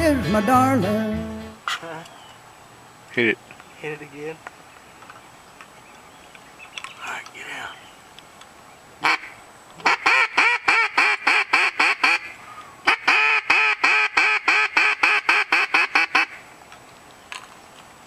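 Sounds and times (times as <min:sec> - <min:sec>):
duck call quacks: 0:09.0 - 0:16.4.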